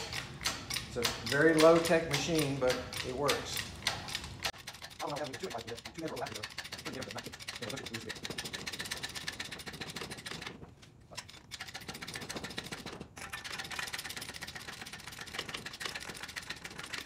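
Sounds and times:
hydraulic jack clicking: 0:00.0 - 0:10.5.

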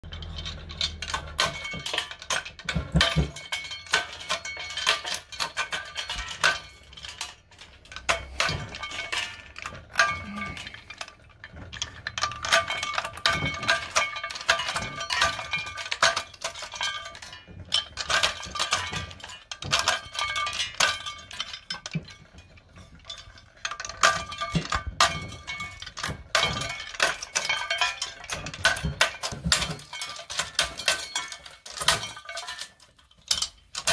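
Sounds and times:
shells clinking into steel tray: 0:22.8 - 0:33.9.

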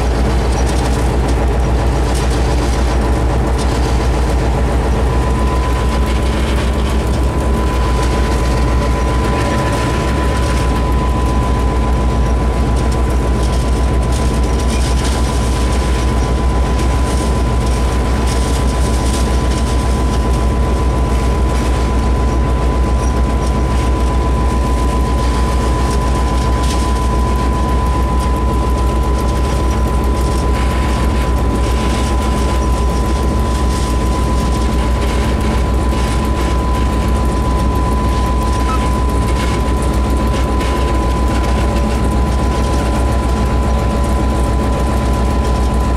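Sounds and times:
high whine: 0:00.0 - 0:45.9
locomotive engine drone: 0:00.0 - 0:45.9.

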